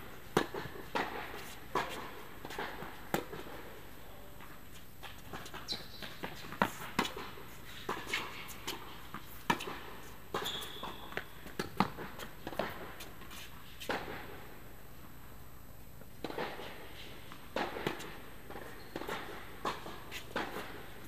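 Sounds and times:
racket hitting tennis ball: 0:00.0 - 0:03.8, 0:05.0 - 0:13.1, 0:13.8 - 0:14.4, 0:16.2 - 0:16.8, 0:17.5 - 0:21.0
tennis ball bouncing: 0:00.2 - 0:03.6, 0:05.0 - 0:13.0, 0:16.2 - 0:16.6, 0:17.5 - 0:21.0
high shoe squeak: 0:05.4 - 0:06.5, 0:10.4 - 0:11.4, 0:18.7 - 0:19.3.

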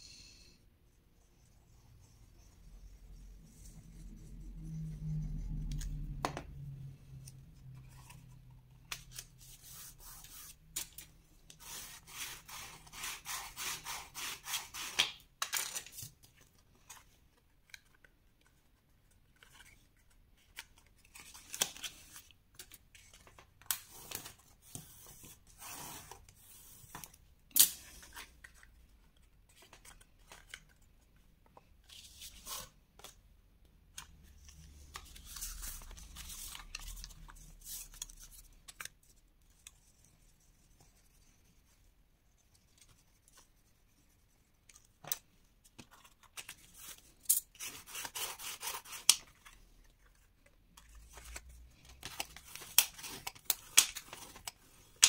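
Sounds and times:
paper rubbing and rustling: 0:34.3 - 0:38.6.

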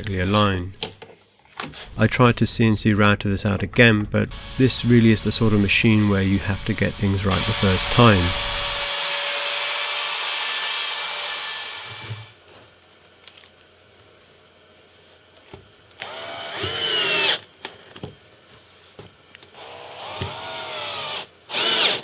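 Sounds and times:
cordless drill driving screws: 0:04.3 - 0:12.3, 0:16.0 - 0:17.4, 0:19.6 - 0:22.0
router spindle cutting acrylic: 0:04.3 - 0:12.3.

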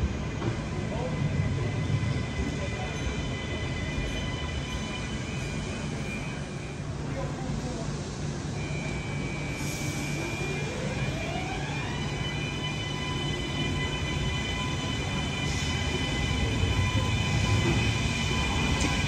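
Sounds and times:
train rumble: 0:00.0 - 0:19.0
train electric whine: 0:08.6 - 0:19.0.

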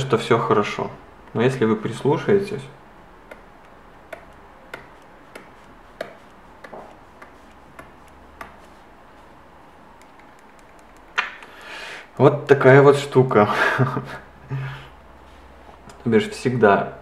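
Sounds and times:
stylus tip tapping glass screen: 0:03.2 - 0:08.6.

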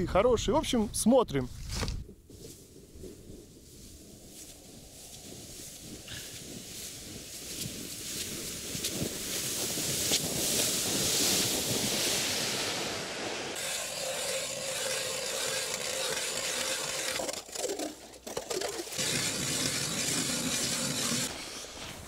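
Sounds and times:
scraping and crunching on snowy ice: 0:04.4 - 0:22.0
hand ice auger rasping: 0:13.6 - 0:21.8.

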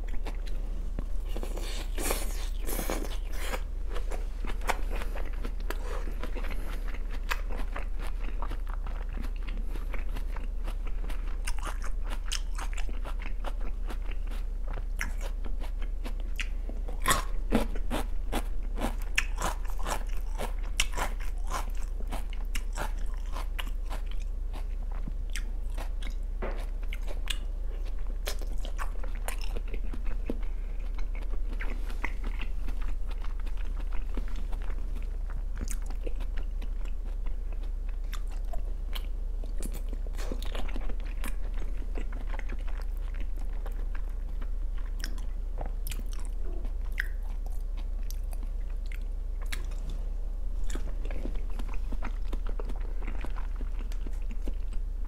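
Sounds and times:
person chewing: 0:00.0 - 0:50.0, 0:50.6 - 0:54.9
low hum: 0:23.7 - 0:55.0.

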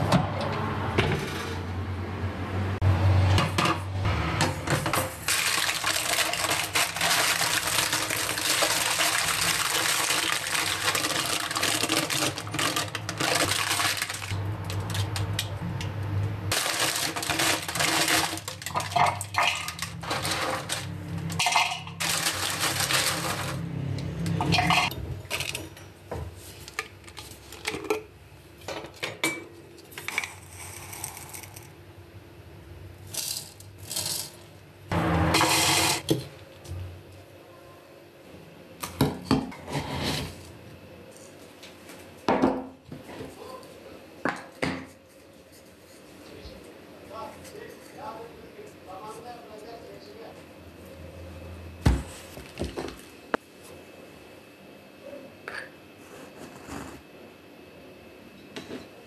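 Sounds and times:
baking paper crinkling: 0:05.2 - 0:15.4, 0:16.5 - 0:21.3, 0:22.0 - 0:23.6.

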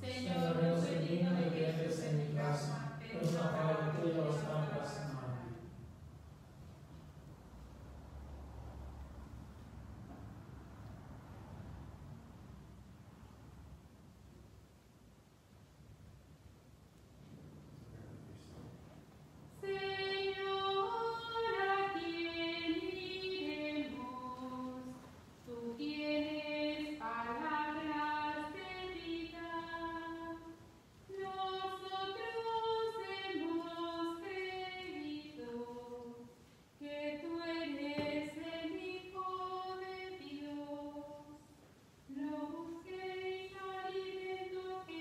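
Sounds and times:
woman singing a hymn: 0:00.0 - 0:05.2, 0:19.6 - 0:45.0.

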